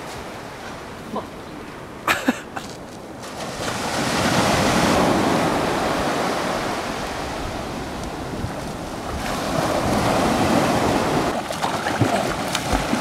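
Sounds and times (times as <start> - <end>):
surf washing up a sandy beach: 3.1 - 13.0.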